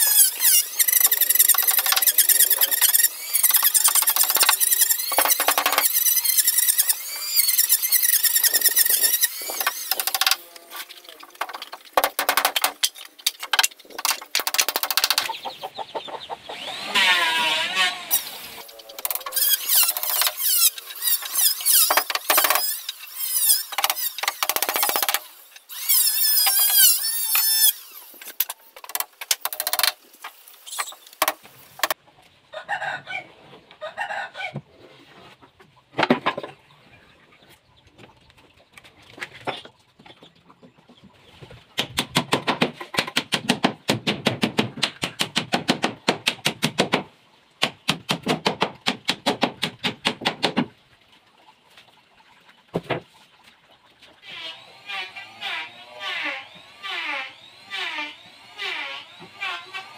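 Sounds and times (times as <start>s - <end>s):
hammer nailing wood: 2.8s - 6.0s, 8.8s - 10.4s, 11.4s - 15.3s, 21.0s - 22.8s, 23.7s - 25.3s, 41.8s - 50.7s
chickens clucking: 15.1s - 17.2s, 31.9s - 38.6s.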